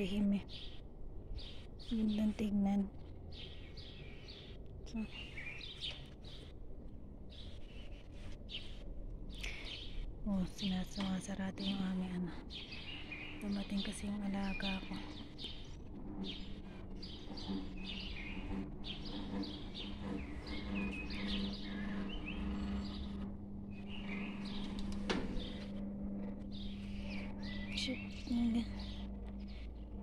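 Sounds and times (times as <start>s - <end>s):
small birds chirping: 0.0s - 30.0s
gate motor electric hum: 9.1s - 30.0s.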